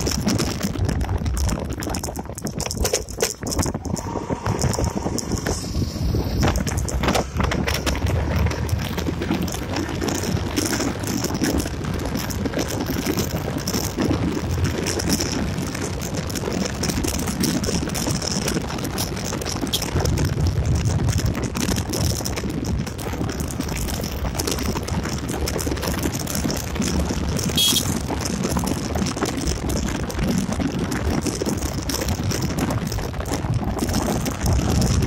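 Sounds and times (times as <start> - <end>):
bike rattling: 0.0 - 35.0
wind rushing over microphone: 0.0 - 35.0
motorcycle engine drone: 2.9 - 30.4.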